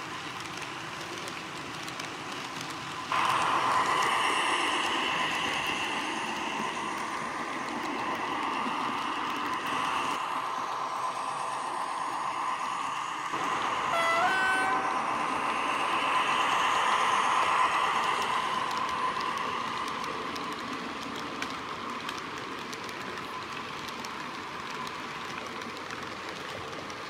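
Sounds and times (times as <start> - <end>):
model train rolling on track: 0.0 - 27.0
two-tone train horn: 13.6 - 15.1.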